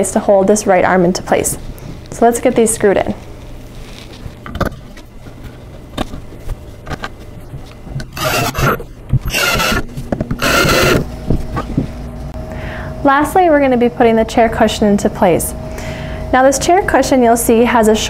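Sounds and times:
cordless drill bursts: 8.1 - 11.1
screws clicking and tapping: 8.1 - 11.1.

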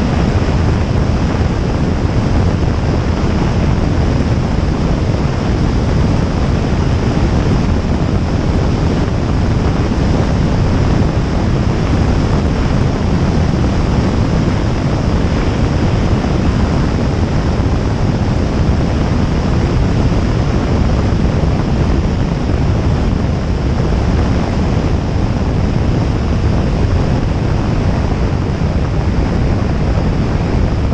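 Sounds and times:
aircraft engine and propeller drone: 0.0 - 30.9
wind buffeting microphone: 0.0 - 30.9.

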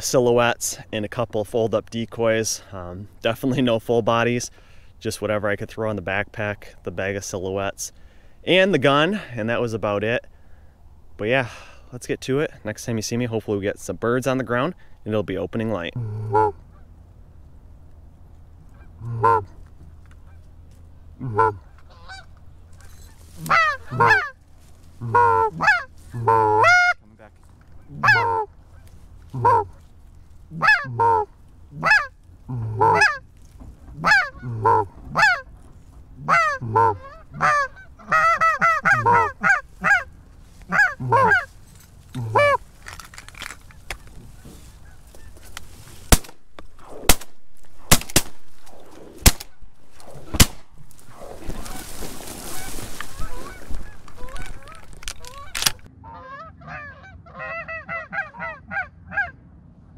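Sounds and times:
goose clucking: 16.0 - 17.0, 18.6 - 19.6, 21.2 - 24.4, 25.0 - 27.0, 27.7 - 29.9, 30.5 - 33.3, 33.9 - 35.5, 36.2 - 45.7, 51.4 - 59.4
goose honking: 16.0 - 17.0, 18.6 - 19.6, 21.2 - 24.4, 25.0 - 27.1, 27.8 - 29.9, 30.5 - 33.3, 33.9 - 35.6, 36.2 - 46.0, 51.1 - 59.4
sharp clicks: 54.1 - 55.9.

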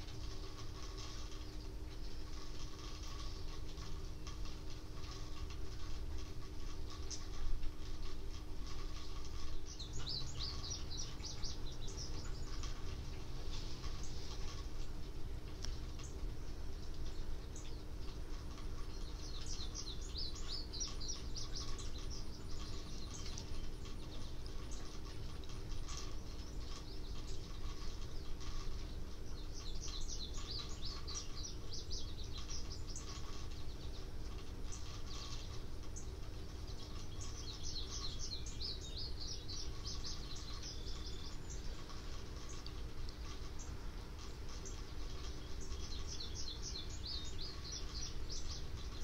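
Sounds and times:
faint constant hum: 0.0 - 49.0
songbird chirping: 0.0 - 49.0.

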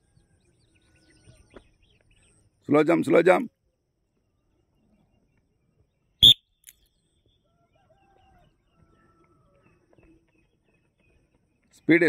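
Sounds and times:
loud whistle blast: 6.2 - 6.4.

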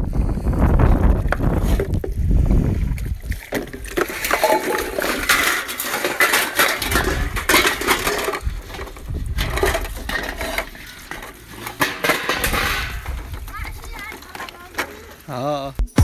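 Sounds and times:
wind rumbling on microphone: 0.0 - 5.4, 6.8 - 10.8, 12.4 - 14.0
metal plates and cups clinking: 3.5 - 15.3.

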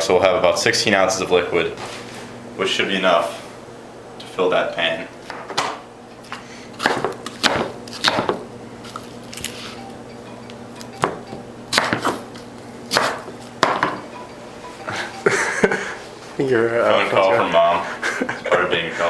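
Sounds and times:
knife chopping on wooden board: 6.8 - 8.4, 11.0 - 12.3, 12.9 - 14.0.

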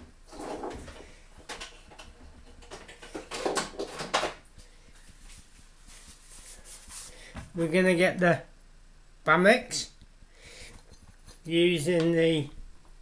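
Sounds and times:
kitchen things knocking and clattering: 0.4 - 4.4.

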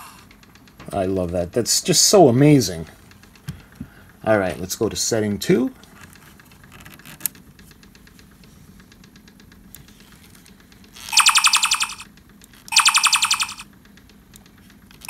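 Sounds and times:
dial click and ticking: 10.6 - 14.5
pulsing electronic buzz bursts: 11.1 - 12.0, 12.7 - 13.6.

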